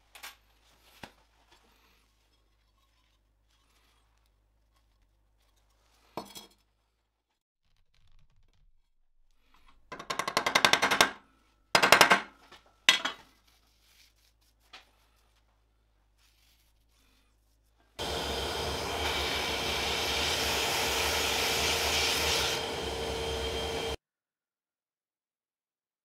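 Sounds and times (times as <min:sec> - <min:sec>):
motor humming: 0:18.0 - 0:24.0.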